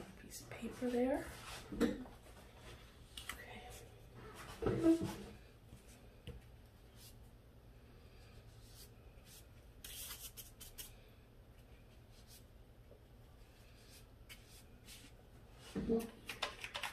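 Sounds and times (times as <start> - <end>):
paintbrush swishing: 13.4 - 15.7.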